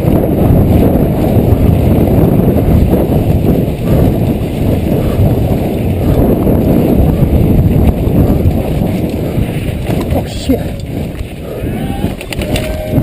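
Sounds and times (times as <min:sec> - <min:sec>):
bike rattling over dirt trail: 0:00.0 - 0:13.0
wind buffeting microphone: 0:00.0 - 0:13.0.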